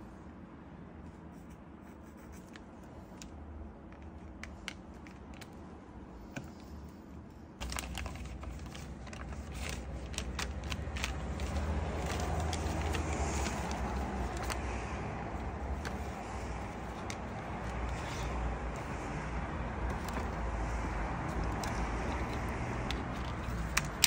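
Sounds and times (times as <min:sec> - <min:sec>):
clicks and taps of markers: 0:01.4 - 0:05.6, 0:20.8 - 0:24.0
newspaper rustling and crinkling: 0:07.6 - 0:19.2, 0:19.8 - 0:24.0.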